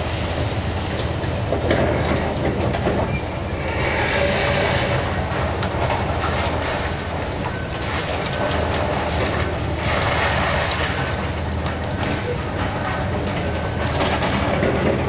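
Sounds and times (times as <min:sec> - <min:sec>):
excavator diesel engine running: 0:00.0 - 0:15.0
concrete debris rattling and clattering: 0:05.0 - 0:15.0.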